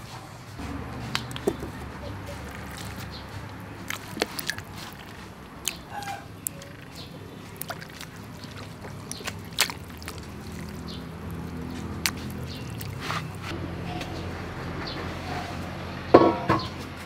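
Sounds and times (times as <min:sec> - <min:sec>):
water splashing and sloshing: 0:00.6 - 0:13.6.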